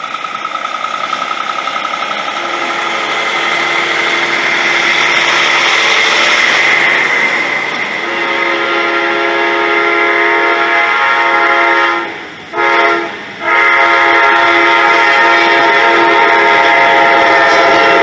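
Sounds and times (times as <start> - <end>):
locomotive air horn blasts: 2.4 - 4.4, 8.0 - 18.0.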